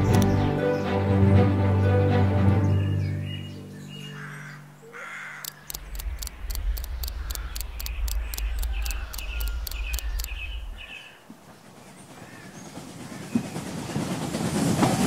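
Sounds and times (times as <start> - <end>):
fast even ticking: 0.0 - 0.5, 5.4 - 10.9
crows cawing: 4.0 - 5.7, 7.2 - 7.7
low rumble: 5.8 - 11.0.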